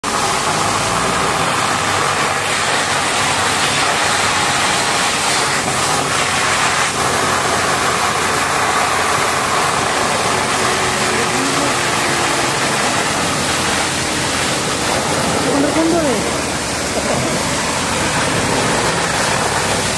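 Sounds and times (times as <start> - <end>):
diesel engine idling: 0.0 - 19.9
water jet hissing and spattering: 0.0 - 19.9.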